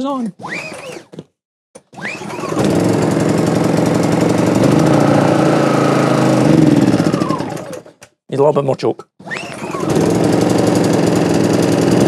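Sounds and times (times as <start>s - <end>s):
generator engine starting and running: 1.8s - 8.0s, 9.2s - 12.0s.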